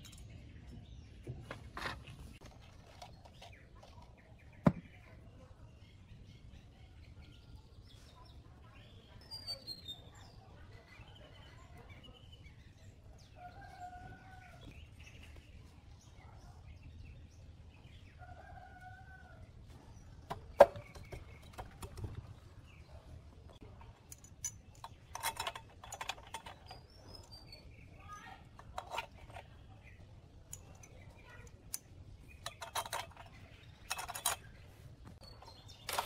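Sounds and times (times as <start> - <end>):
small birds chirping: 0.0 - 36.0
metal engine parts clinking: 23.7 - 27.5, 30.5 - 34.6, 35.2 - 36.0.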